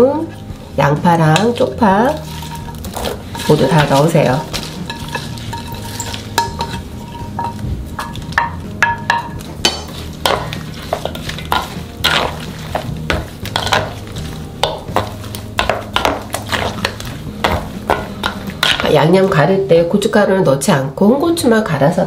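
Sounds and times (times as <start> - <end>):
paste stirred in a bowl: 1.4 - 8.4, 9.2 - 19.3.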